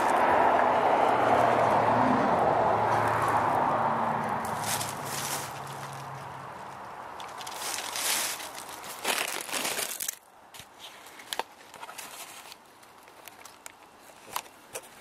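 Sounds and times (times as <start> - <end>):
clothing rustling against microphone: 4.4 - 10.1.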